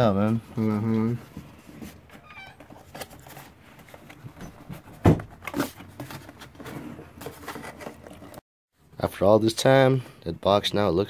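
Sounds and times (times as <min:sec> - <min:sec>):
cardboard scraping and rustling: 0:00.3 - 0:08.4.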